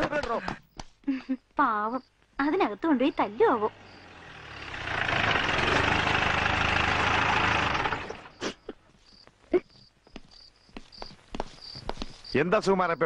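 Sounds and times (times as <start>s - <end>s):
vehicle engine running: 3.0s - 8.4s.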